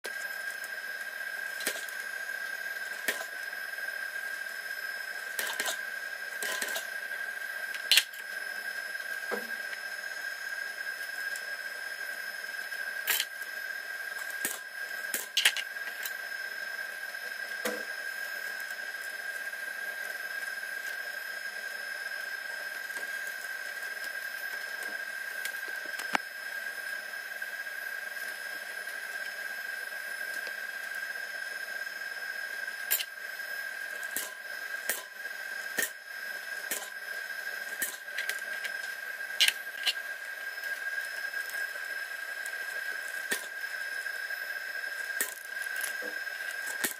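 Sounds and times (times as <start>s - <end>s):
steady high-pitched whine: 0.0s - 46.9s.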